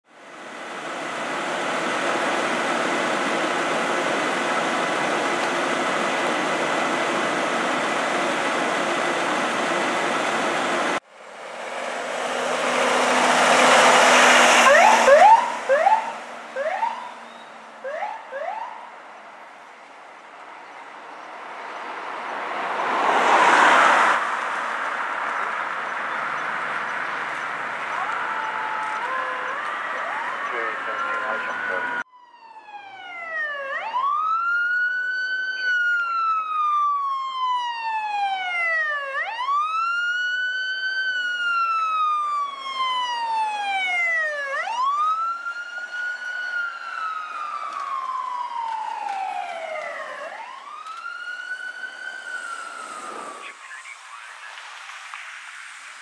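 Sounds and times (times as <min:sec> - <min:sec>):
fire truck engine running: 0:00.1 - 0:18.7, 0:24.4 - 0:32.0, 0:33.5 - 0:53.5
ambulance engine: 0:00.1 - 0:56.0
siren chirps: 0:11.2 - 0:19.0, 0:27.8 - 0:56.0.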